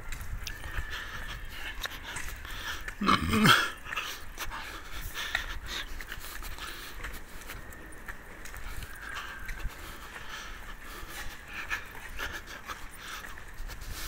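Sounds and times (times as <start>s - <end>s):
footsteps on asphalt: 0.0s - 14.0s.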